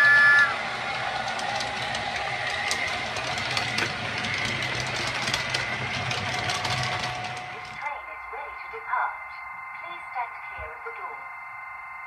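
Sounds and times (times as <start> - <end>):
model train motor hum: 0.0 - 9.2.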